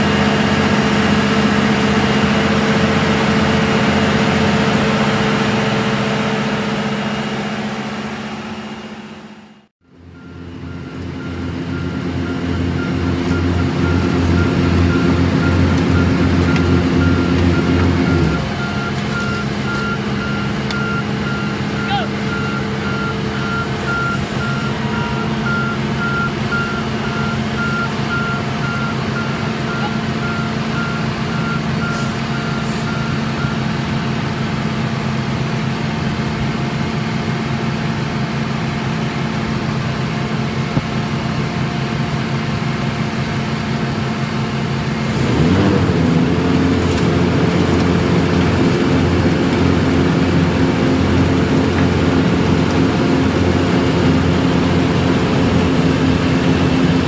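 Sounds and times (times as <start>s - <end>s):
engine note rising: 0.0s - 33.8s
heavy diesel machinery running: 0.0s - 57.0s
vehicle backup alarm beeping: 9.9s - 34.0s.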